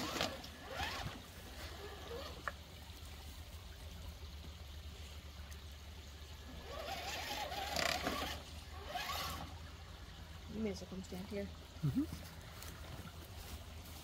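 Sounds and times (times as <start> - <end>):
water trickling over rocks: 0.0 - 14.0
electric motor whining: 6.5 - 9.6.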